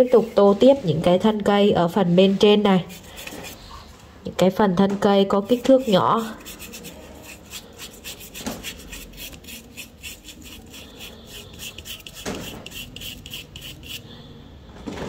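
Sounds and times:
paintbrush scratching on cardboard: 0.0s - 0.8s, 2.5s - 3.8s, 5.4s - 14.1s.

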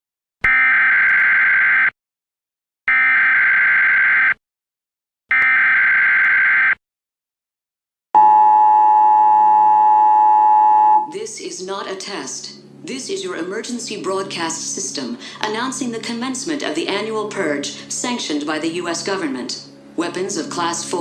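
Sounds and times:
two-tone attention signal: 8.2s - 11.1s.

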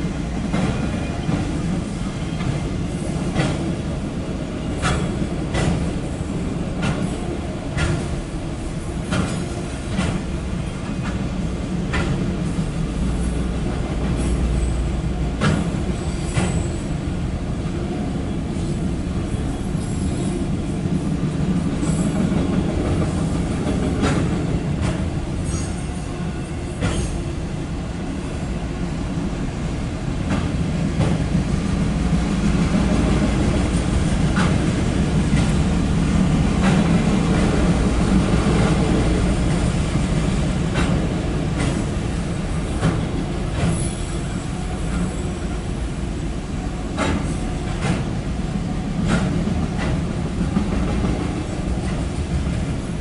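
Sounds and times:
steel wheels rumbling on rail: 0.0s - 53.0s
wheels clicking over rail joints: 33.5s - 45.3s.

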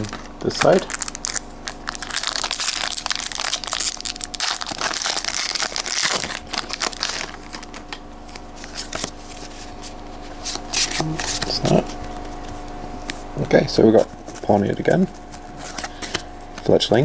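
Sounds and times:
foil wrapper crinkling: 0.0s - 9.8s.

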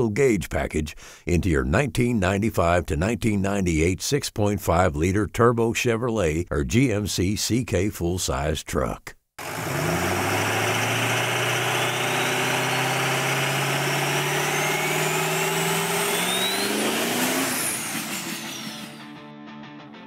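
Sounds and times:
engine accelerating: 9.4s - 19.0s
high whistle rising: 11.4s - 19.1s.

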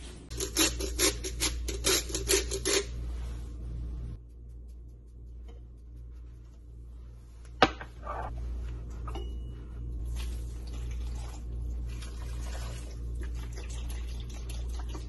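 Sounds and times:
broth pouring and splashing: 10.1s - 15.0s.

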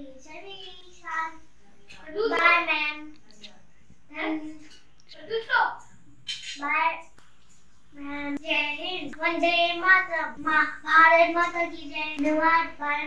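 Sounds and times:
boy singing: 8.0s - 13.0s.

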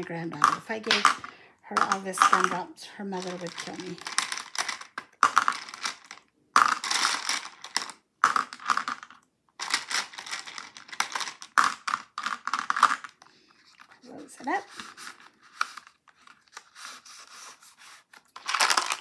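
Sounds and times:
gumballs clattering in plastic: 0.0s - 13.2s, 18.3s - 19.0s.

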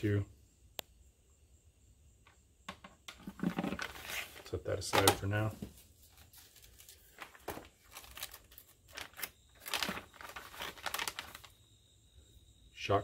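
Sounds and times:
plastic bag crinkling: 6.1s - 11.6s.

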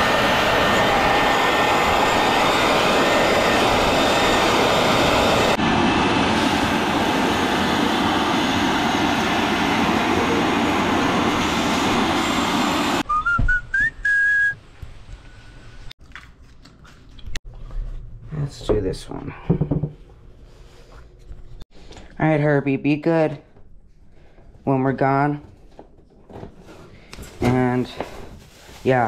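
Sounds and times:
loud steady rushing noise: 0.0s - 13.0s
whistle-like squeal rising: 12.9s - 14.6s.

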